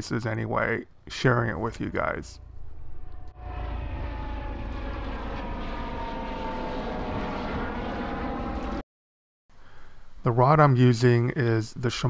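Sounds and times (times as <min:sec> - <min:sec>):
low rumble: 0:01.7 - 0:08.8
steady engine drone: 0:02.3 - 0:08.8.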